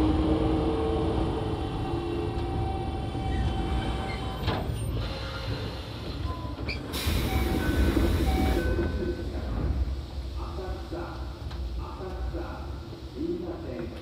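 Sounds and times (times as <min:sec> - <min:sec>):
air hiss: 0:06.8 - 0:08.7.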